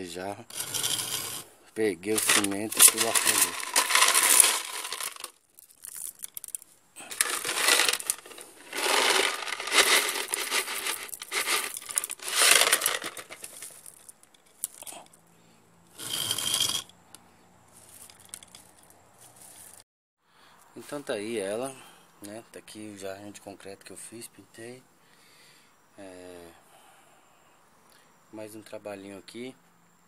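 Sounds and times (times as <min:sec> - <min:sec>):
pebbles clinking into a pot: 0:00.5 - 0:01.4, 0:02.1 - 0:15.1, 0:16.0 - 0:16.9, 0:17.8 - 0:18.9.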